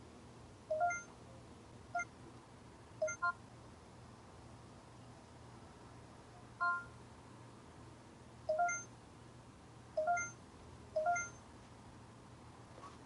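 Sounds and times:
camcorder touchscreen beeps: 0:00.7 - 0:01.1, 0:03.0 - 0:03.4, 0:06.6 - 0:06.9, 0:08.5 - 0:08.9, 0:10.0 - 0:10.4, 0:11.0 - 0:11.4.

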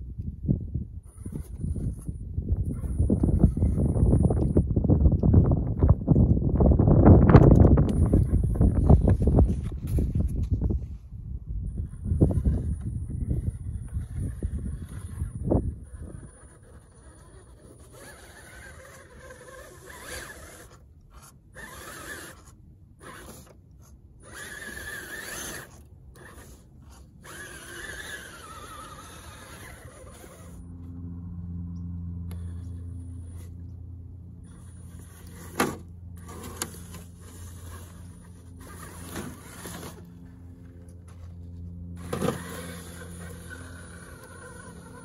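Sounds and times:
small electric motor whirring: 0:01.0 - 0:06.3, 0:07.0 - 0:11.0, 0:11.6 - 0:45.0
tyres scrabbling over soil: 0:34.4 - 0:45.0.

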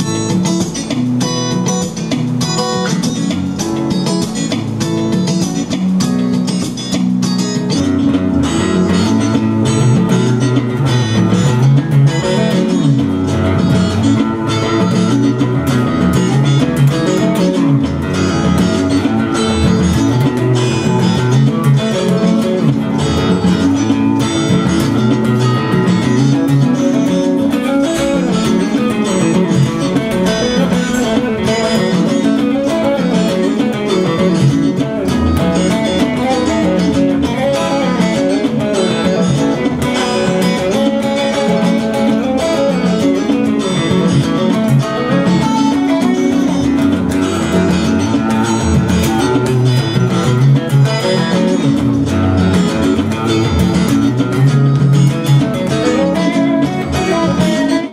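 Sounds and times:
acoustic blues guitar: 0:00.0 - 0:57.9
electric guitar: 0:00.0 - 0:57.9.

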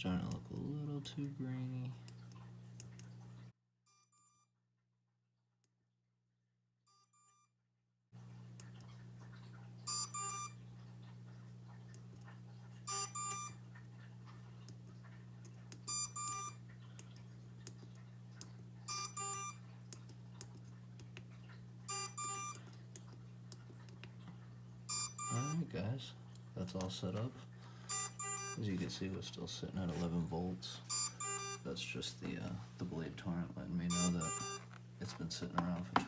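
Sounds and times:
steady low hum: 0:08.2 - 0:36.0
short high beeps: 0:09.9 - 0:10.6, 0:12.9 - 0:13.6, 0:15.9 - 0:16.6, 0:18.9 - 0:19.6, 0:21.9 - 0:22.6, 0:24.9 - 0:25.6, 0:27.9 - 0:28.6, 0:30.9 - 0:31.6, 0:33.9 - 0:34.7.

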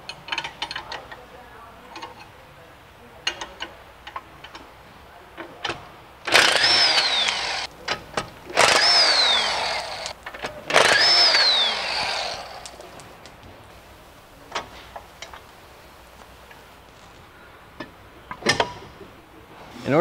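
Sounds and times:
hand ratchet clicks: 0:00.0 - 0:01.2, 0:05.6 - 0:13.0
impact wrench hammering: 0:06.3 - 0:12.8.

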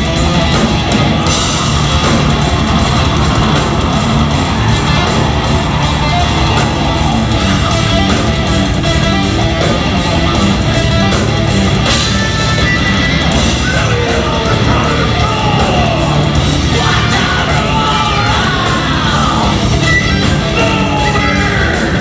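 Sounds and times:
metal band playing: 0:00.0 - 0:22.0
singing vocals: 0:13.5 - 0:22.0.

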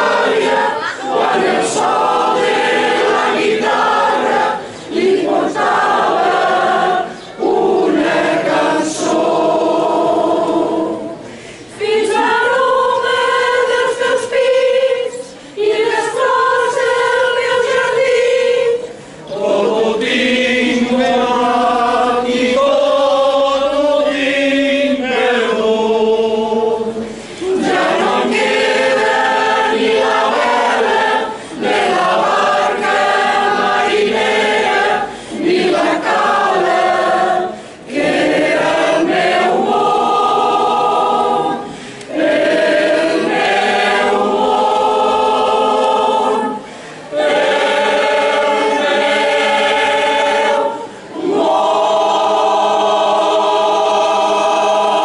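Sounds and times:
mixed choir singing unaccompanied: 0:00.0 - 0:55.0.

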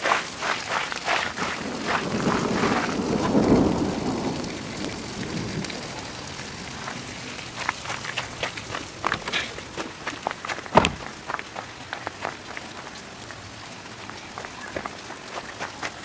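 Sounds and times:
rain falling: 0:00.0 - 0:16.0
thunder rumbling: 0:01.4 - 0:10.0.

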